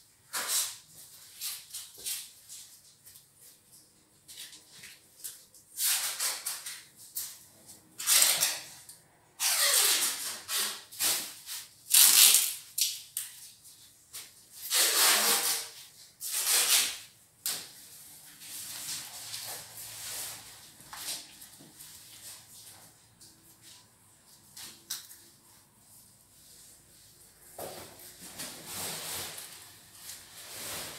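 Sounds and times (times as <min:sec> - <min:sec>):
broom sweeping a wooden floor: 0:17.8 - 0:24.8, 0:25.5 - 0:30.9.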